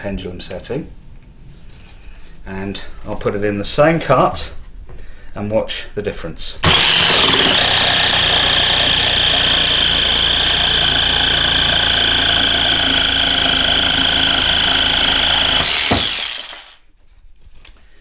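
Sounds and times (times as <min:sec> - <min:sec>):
jigsaw cutting timber: 0:06.6 - 0:16.8.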